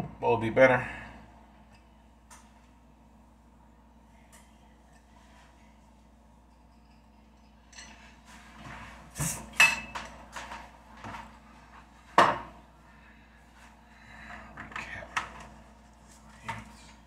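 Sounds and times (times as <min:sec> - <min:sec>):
ceramic dishes clinking: 0:09.6 - 0:10.0.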